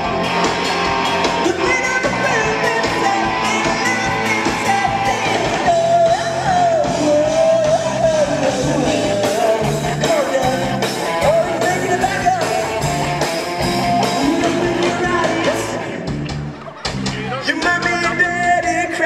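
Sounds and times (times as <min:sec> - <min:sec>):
drums: 0:00.0 - 0:19.0
electric guitar: 0:00.0 - 0:19.0
person singing: 0:01.4 - 0:13.2, 0:13.9 - 0:16.1.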